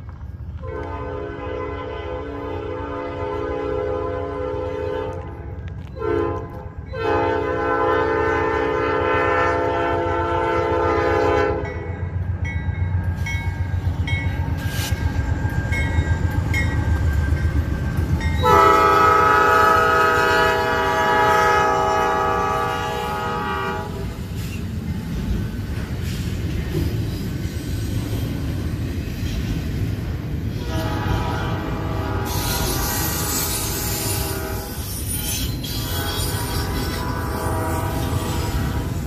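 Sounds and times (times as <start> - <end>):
diesel locomotive rumble: 0.0 - 39.0
locomotive air horn chord: 0.6 - 11.9, 18.4 - 24.1, 30.6 - 34.9, 35.7 - 39.0.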